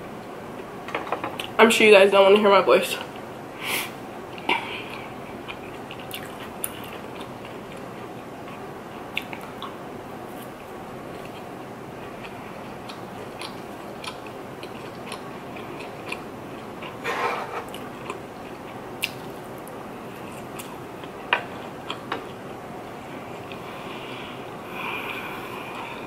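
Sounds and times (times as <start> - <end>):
wet chewing and mouth sounds: 4.3 - 17.0, 17.6 - 22.5.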